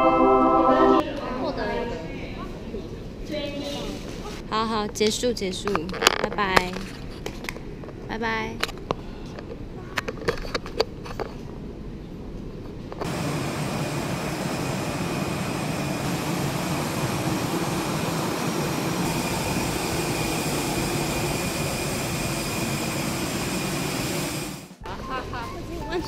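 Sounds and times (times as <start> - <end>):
faint high whine: 0.0 - 1.5
jet airliner roar: 13.0 - 24.8.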